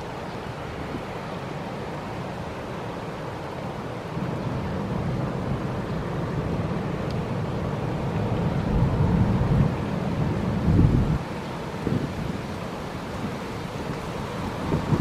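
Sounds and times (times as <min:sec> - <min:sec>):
faint ferry engines: 0:00.0 - 0:15.0
wind buffeting microphone: 0:04.2 - 0:15.0.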